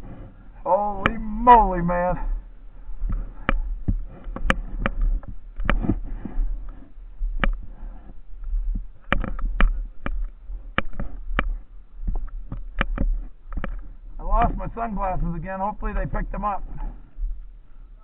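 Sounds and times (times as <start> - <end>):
wind rumbling on microphone: 0.0 - 18.0
sharp clicks and crunches: 3.0 - 17.0.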